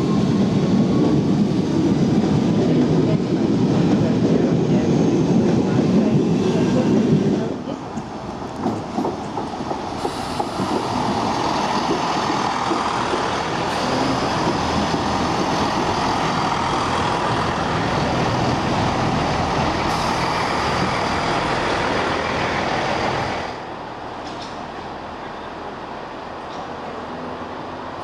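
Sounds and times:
diesel train passing: 0:00.0 - 0:28.0
diesel train idling rumble: 0:09.8 - 0:25.8.

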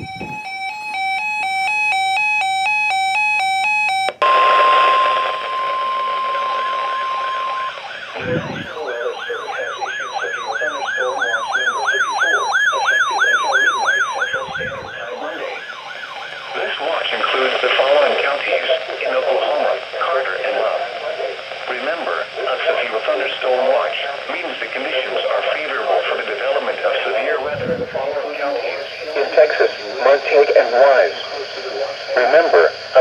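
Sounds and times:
warbling electronic siren: 0:00.0 - 0:18.6
steady alarm tone: 0:00.0 - 0:33.0.

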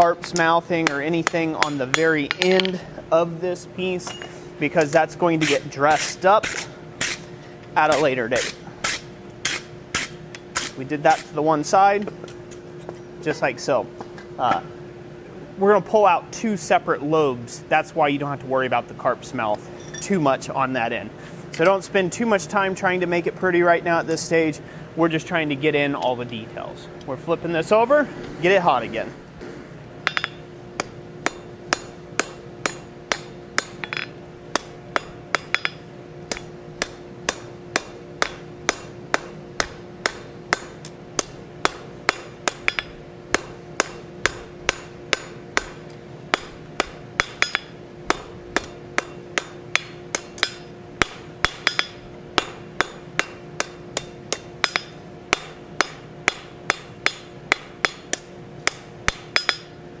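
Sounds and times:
hammer ringing on anvil: 0:30.0 - 0:30.4, 0:31.2 - 0:40.8, 0:41.7 - 0:45.7, 0:46.4 - 0:58.0, 0:58.7 - 0:59.8.

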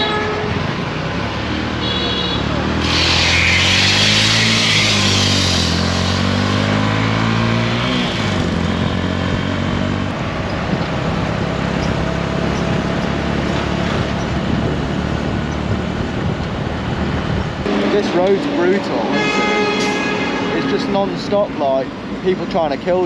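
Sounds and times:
motorbike engine hum: 0:00.0 - 0:23.0
wind and road noise: 0:00.0 - 0:23.0.

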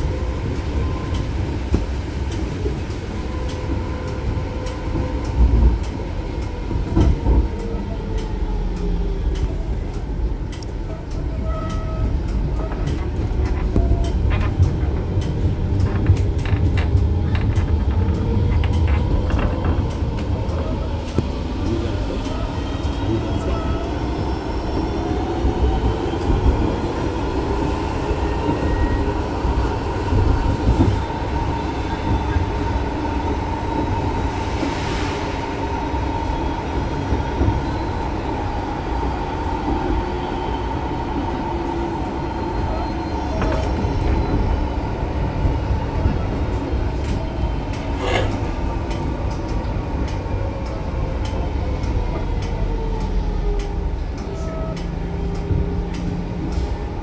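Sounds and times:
tram wheel and rail rumble: 0:00.0 - 0:57.0.

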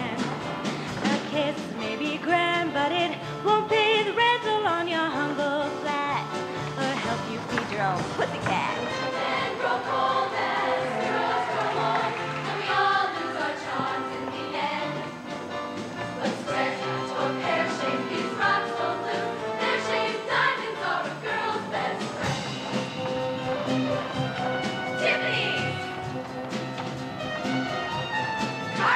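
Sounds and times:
musical accompaniment: 0:00.0 - 0:28.9
choir singing: 0:08.8 - 0:15.2, 0:16.1 - 0:22.5, 0:24.8 - 0:25.9.

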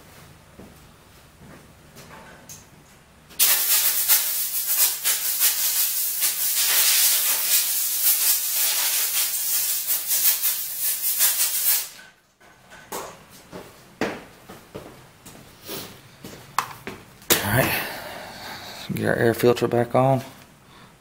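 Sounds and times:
compressed air blow gun hissing: 0:03.4 - 0:12.0.

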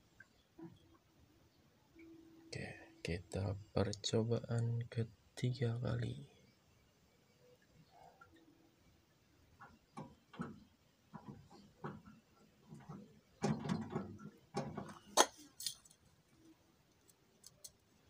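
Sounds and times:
soft rustles and knocks: 0:09.6 - 0:16.0.

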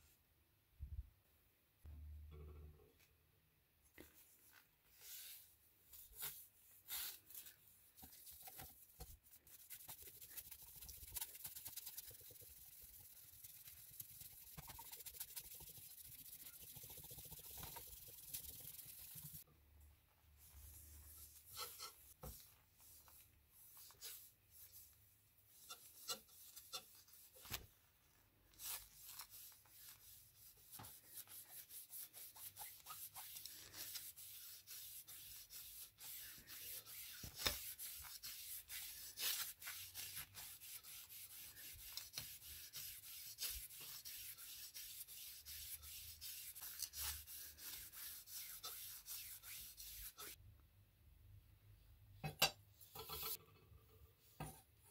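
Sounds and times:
cloth rag rubbing steel blade: 0:21.2 - 0:24.9, 0:25.5 - 0:27.6, 0:28.6 - 0:50.4.

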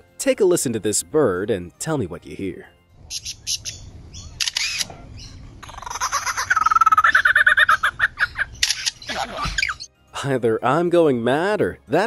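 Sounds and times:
lyrebird mimicking shutter clicks: 0:04.4 - 0:04.9, 0:08.5 - 0:09.2.

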